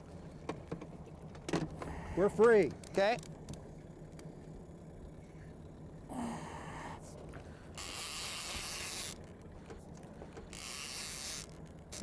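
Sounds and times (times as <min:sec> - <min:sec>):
fishing reel whirring rasp: 0:07.8 - 0:09.3, 0:10.4 - 0:12.0.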